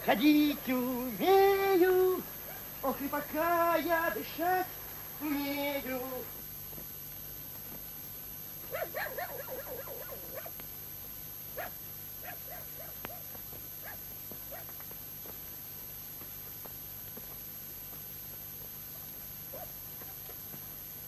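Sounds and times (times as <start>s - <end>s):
dog whimpering and yelping: 8.8s - 10.5s.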